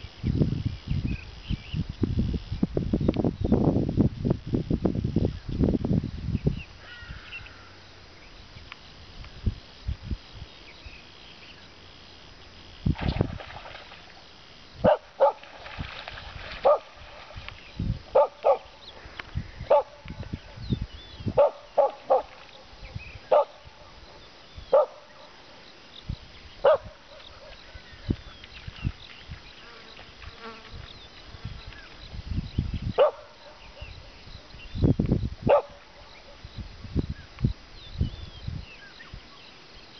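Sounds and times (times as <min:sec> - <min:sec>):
dog barking: 0:14.9 - 0:15.4, 0:16.6 - 0:16.9, 0:18.1 - 0:18.7, 0:19.7 - 0:20.0, 0:21.4 - 0:22.3, 0:23.3 - 0:23.6, 0:24.7 - 0:25.0, 0:26.6 - 0:27.6, 0:33.0 - 0:33.6, 0:35.5 - 0:35.8.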